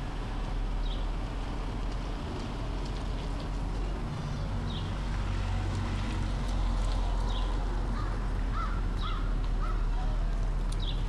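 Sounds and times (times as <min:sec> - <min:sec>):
crow cawing: 0:08.0 - 0:09.9.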